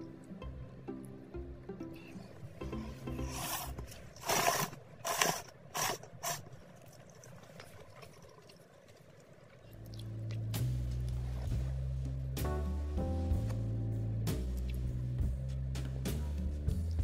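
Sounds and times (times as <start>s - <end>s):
music: 0.0s - 4.0s, 9.8s - 17.0s
eating noises: 2.0s - 11.6s.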